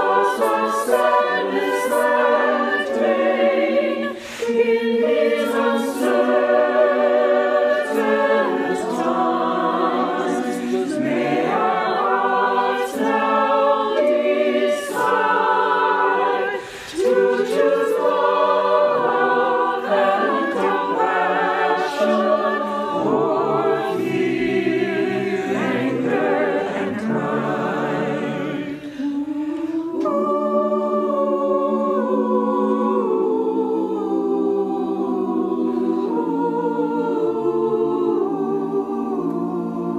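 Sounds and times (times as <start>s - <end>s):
choir singing in harmony: 0.0s - 39.9s.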